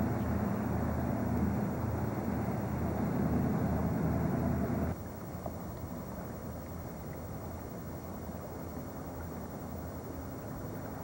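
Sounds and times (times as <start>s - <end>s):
engine rumble: 0.0s - 5.0s.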